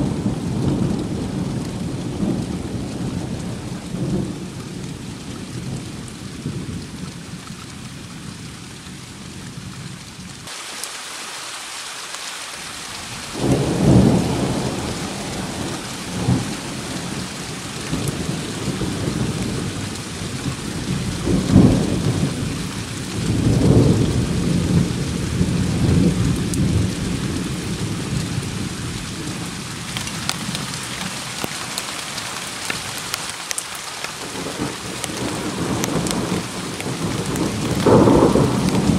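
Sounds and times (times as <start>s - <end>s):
steady rain hiss: 0.0s - 38.9s
rolling thunder: 13.3s - 29.6s, 34.3s - 38.9s.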